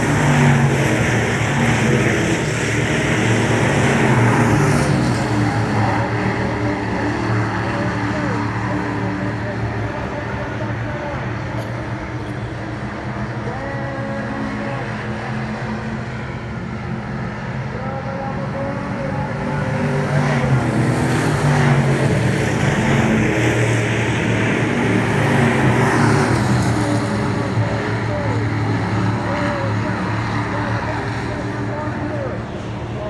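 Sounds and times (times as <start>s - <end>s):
stock car engines revving: 0.0s - 33.0s.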